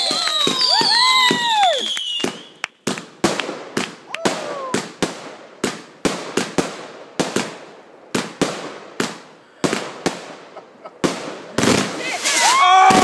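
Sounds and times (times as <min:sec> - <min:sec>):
firework cake bangs: 0:11.0 - 0:13.0.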